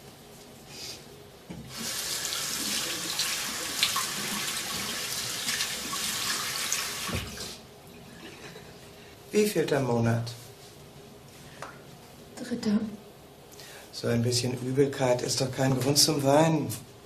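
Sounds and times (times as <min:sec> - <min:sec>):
tap running into sink: 0:07.0 - 0:07.4.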